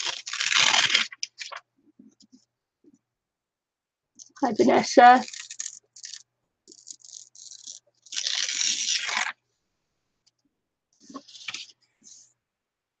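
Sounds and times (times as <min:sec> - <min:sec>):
paper being torn by hand: 0:00.0 - 0:01.6, 0:05.1 - 0:09.4.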